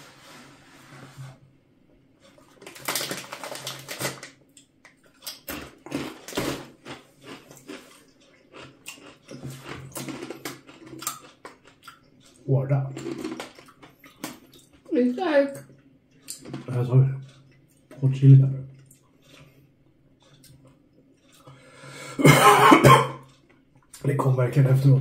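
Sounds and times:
chips being chewed: 2.2 - 14.8, 15.6 - 18.0, 18.8 - 21.7
chip bag crackling: 2.4 - 4.4.

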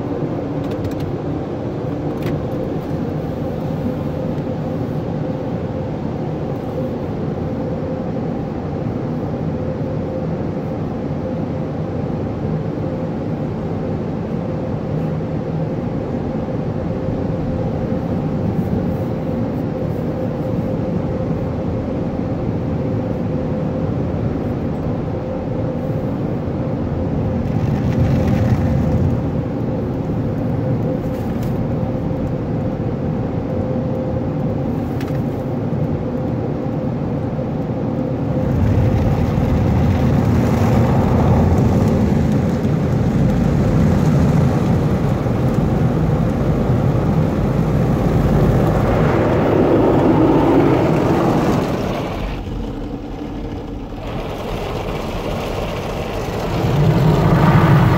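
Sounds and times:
wash machinery: 0.0 - 57.9
car wash brushes: 38.5 - 57.9.

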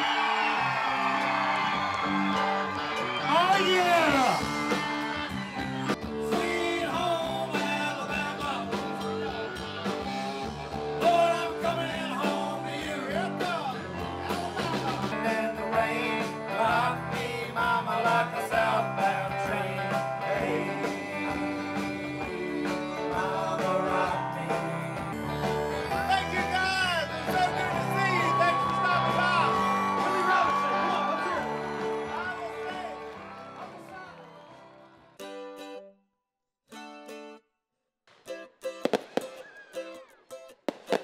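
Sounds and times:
live rock band playing: 0.1 - 34.2
voices singing into microphones: 6.2 - 9.0, 11.0 - 13.5, 14.5 - 25.4.

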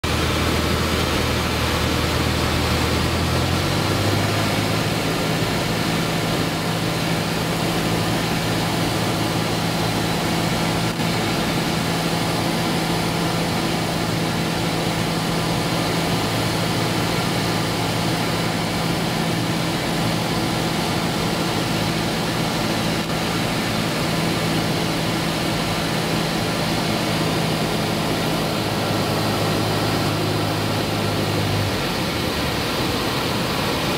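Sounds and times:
aircraft engine droning in cabin: 0.0 - 33.9.

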